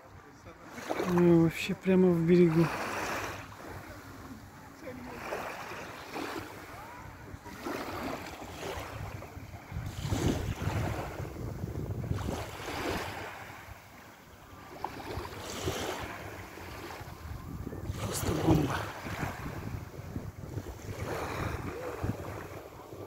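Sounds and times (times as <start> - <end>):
waves lapping on sandy shore: 0.0 - 23.0
wind buffeting microphone: 6.7 - 13.8, 15.0 - 23.0.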